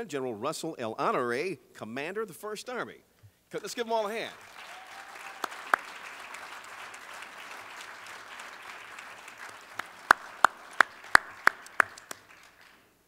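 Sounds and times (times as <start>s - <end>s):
audience applause: 4.1s - 12.9s
loud hand claps close by: 4.4s - 12.8s.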